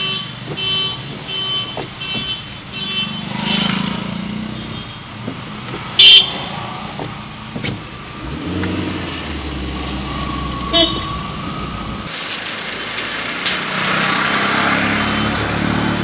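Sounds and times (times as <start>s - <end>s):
motorcycle engines running: 3.0s - 7.7s
horn toots: 6.0s - 6.4s, 10.6s - 11.2s
loud horn blast: 10.7s - 11.2s.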